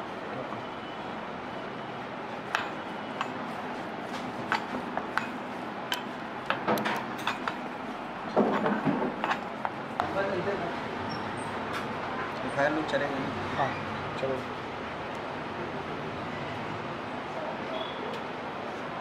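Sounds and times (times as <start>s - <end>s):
busy stall background hiss: 0.0s - 19.0s
utensils clinking and tapping: 2.5s - 3.4s, 4.5s - 7.6s, 8.3s - 10.1s.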